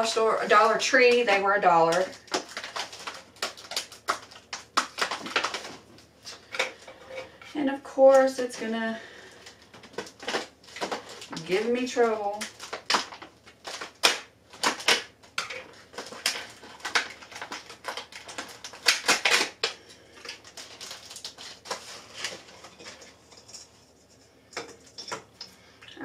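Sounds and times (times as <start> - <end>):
scissors cutting plastic: 0.0 - 7.2, 9.7 - 23.5
plastic clicks and crackles: 12.4 - 23.7.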